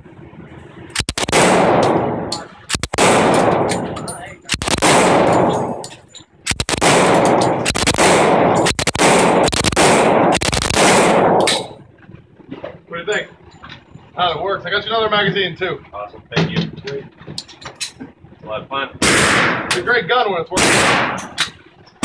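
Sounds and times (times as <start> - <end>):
submachine gun automatic fire: 1.0 - 5.8, 6.5 - 11.8, 20.6 - 21.4.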